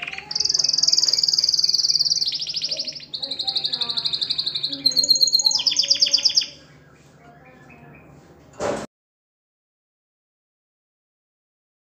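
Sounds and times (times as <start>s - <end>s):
canary singing trills: 0.0s - 8.2s.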